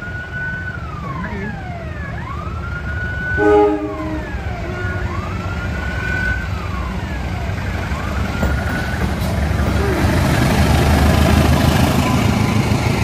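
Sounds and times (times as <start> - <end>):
wailing siren: 0.0 - 8.9
horn blast: 3.4 - 5.1.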